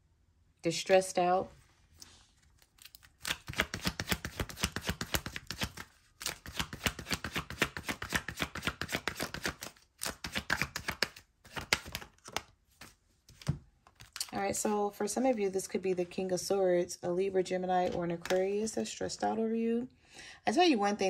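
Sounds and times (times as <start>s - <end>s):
cards being shuffled: 2.0s - 15.3s.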